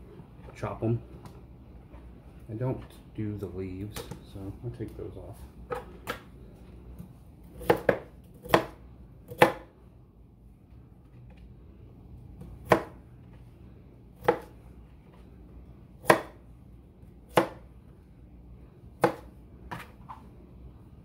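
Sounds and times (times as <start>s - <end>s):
knife chopping on plastic board: 7.0s - 9.7s, 12.4s - 13.0s, 14.2s - 14.6s, 16.0s - 16.4s, 17.3s - 17.7s, 19.0s - 20.2s.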